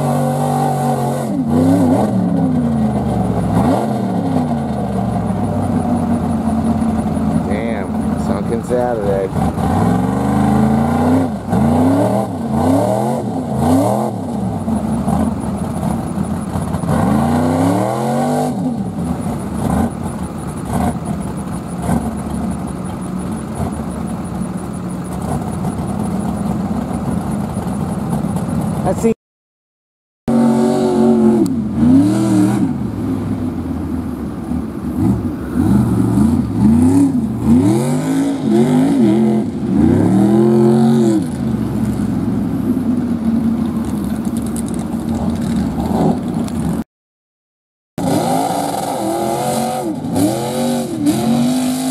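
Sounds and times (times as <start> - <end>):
engine revving hard: 16.9 - 18.7, 30.3 - 32.8, 35.0 - 41.4, 48.0 - 51.9.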